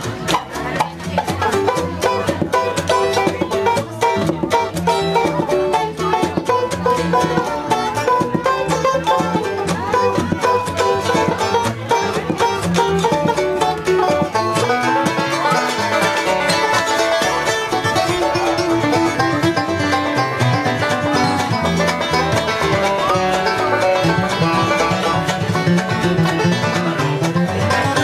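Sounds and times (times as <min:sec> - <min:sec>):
banjo picking: 0:00.0 - 0:28.0
mandolin picking: 0:00.0 - 0:28.0
upright bass: 0:00.0 - 0:28.0.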